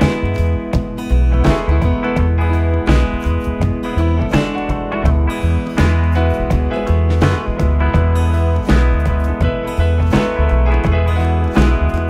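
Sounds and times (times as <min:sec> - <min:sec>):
acoustic guitar music: 0:00.0 - 0:12.0
bass line: 0:00.0 - 0:12.0.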